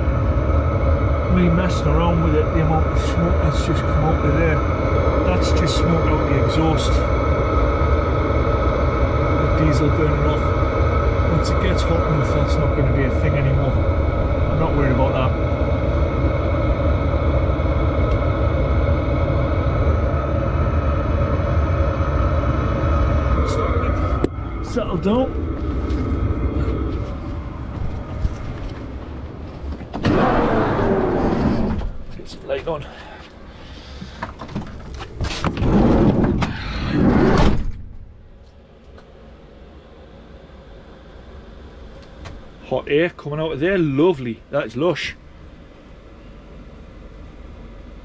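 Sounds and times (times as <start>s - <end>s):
rushes of noise: 0.0s - 34.0s, 34.9s - 37.7s
diesel heater rumbling: 0.0s - 48.0s
faint steady whine: 0.0s - 48.0s.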